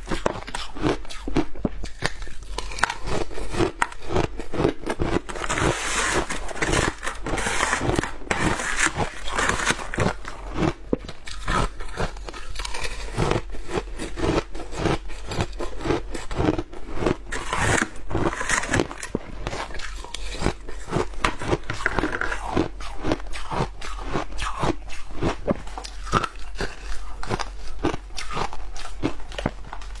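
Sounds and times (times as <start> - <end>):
ice being crunched and chewed: 0.0 - 30.0.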